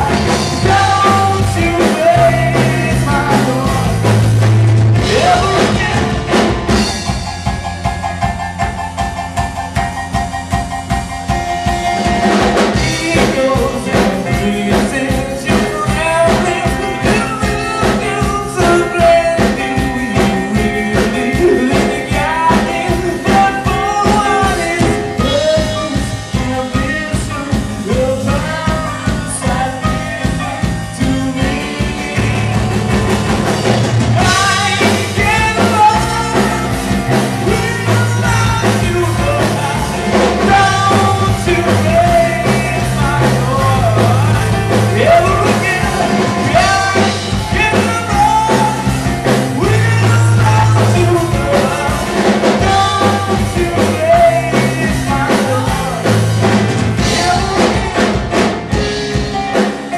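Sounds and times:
man singing into a microphone: 0.0 - 7.1, 12.6 - 32.9, 34.1 - 58.8
live rock band playing: 0.0 - 59.9.

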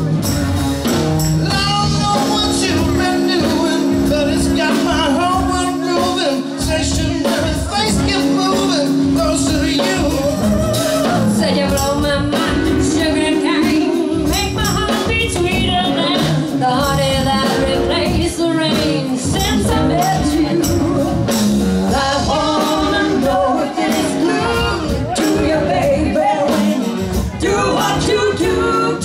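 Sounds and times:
bass guitar: 0.0 - 29.0
drum kit: 0.0 - 29.0
electric guitar: 0.0 - 29.0
women singing with vibrato: 10.4 - 21.2, 21.9 - 29.0.

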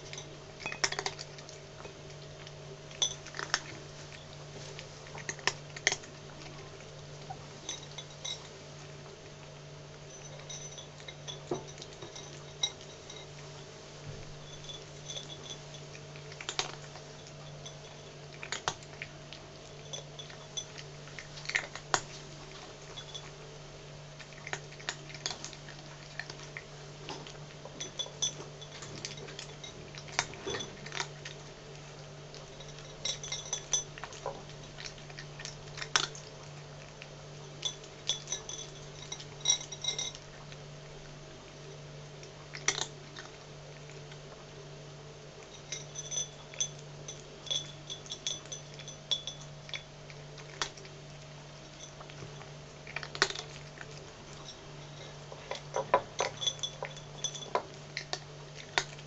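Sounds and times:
cat crunching dry kibble: 0.0 - 13.6, 14.4 - 44.4, 45.4 - 59.0
clinks against plate: 45.6 - 49.8, 54.5 - 57.7.

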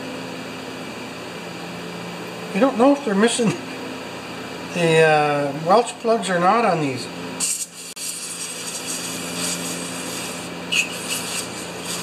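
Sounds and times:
aerosol spray hiss: 7.4 - 12.0.

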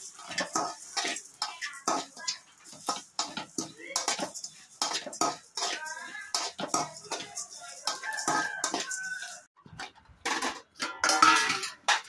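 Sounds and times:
seeds rustling: 0.0 - 9.5
spoon scraping metal pan: 0.0 - 9.5, 10.2 - 12.0.

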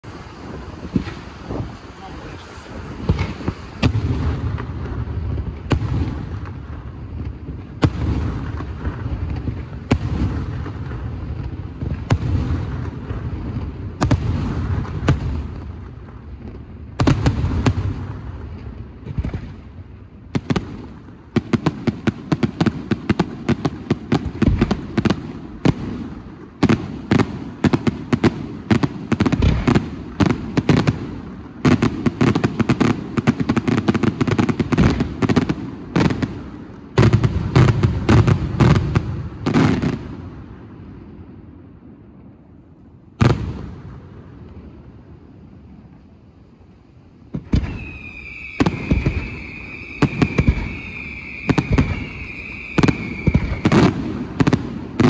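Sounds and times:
rapid sharp firework reports: 0.0 - 16.0, 20.3 - 40.3, 47.4 - 55.0.

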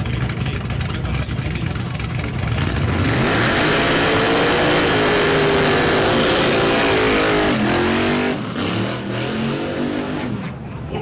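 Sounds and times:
tyres spinning on tarmac: 0.0 - 3.6
car engine revving high: 1.1 - 10.5.

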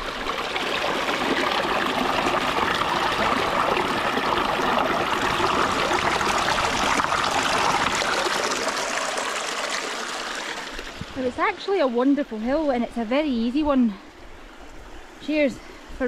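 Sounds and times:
stream splashing over rocks: 0.0 - 11.8.

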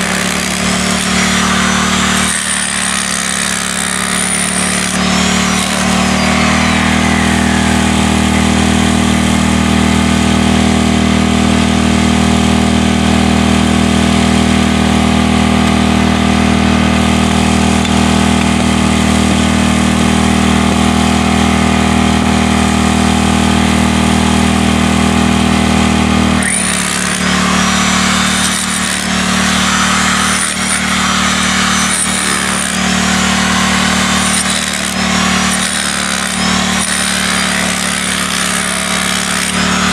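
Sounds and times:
hammer drill into concrete: 0.0 - 11.2, 25.8 - 39.9.

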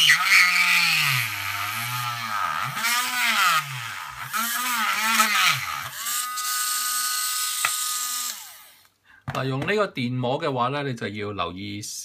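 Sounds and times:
rotary tool cutting plastic: 0.0 - 8.9.

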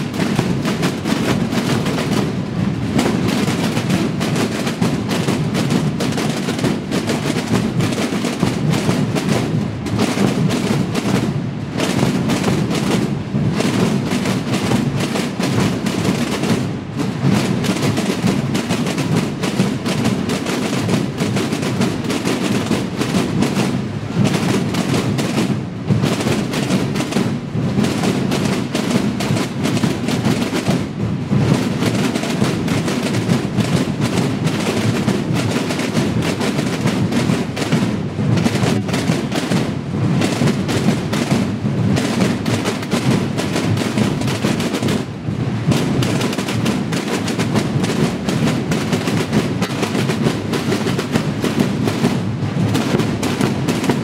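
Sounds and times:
massed snare and bass drums rolling: 0.0 - 54.0.

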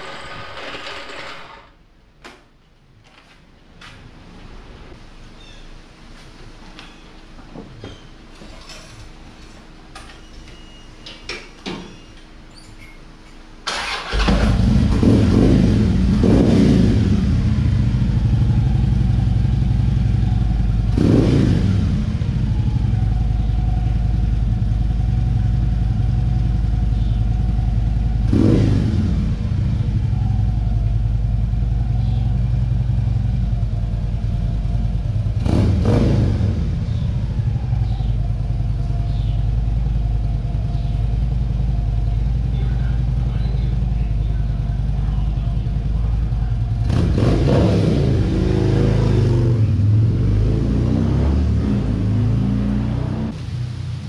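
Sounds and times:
motorcycle engine revving: 13.7 - 53.4.

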